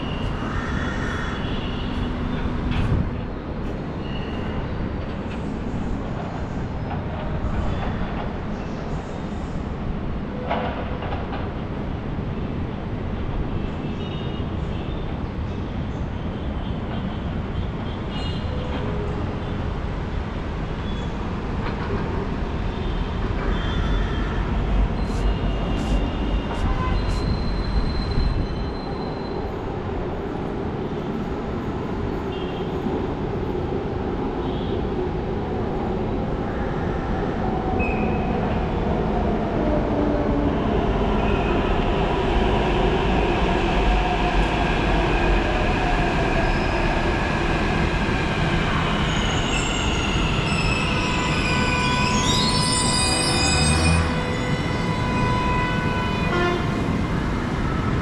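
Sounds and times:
train rumbling: 0.0 - 58.0
metallic whine and wheel squeal: 22.8 - 29.5, 37.8 - 38.5, 48.8 - 56.4.

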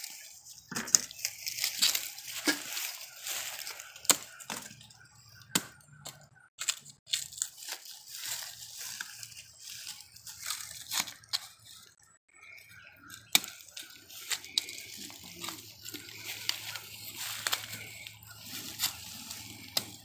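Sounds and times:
husks rustling: 0.0 - 4.9, 13.5 - 20.0.

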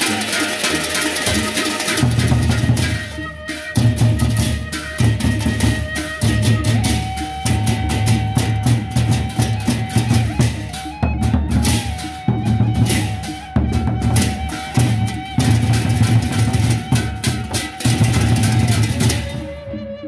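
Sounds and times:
hand cymbals clashing: 0.0 - 3.2, 14.2 - 19.3
barrel drums beating: 0.0 - 19.6.

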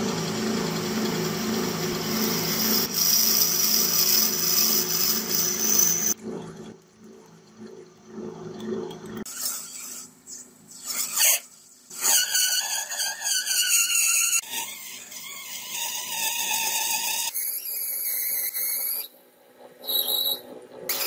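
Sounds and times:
steel squealing under cutting tool: 2.1 - 6.2, 9.3 - 19.2, 19.8 - 21.0.

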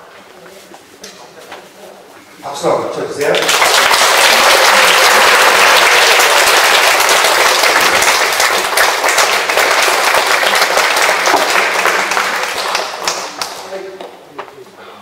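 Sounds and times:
audience applauding: 3.3 - 13.7.

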